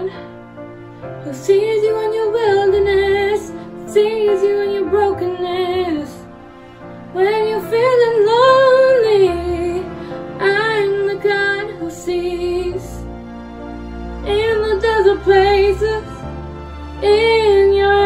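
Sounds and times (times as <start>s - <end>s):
woman singing hymn-like melody: 0.0s - 0.2s, 1.2s - 6.2s, 7.2s - 13.0s, 14.3s - 16.2s, 17.0s - 18.0s
sustained instrumental accompaniment: 0.0s - 18.0s.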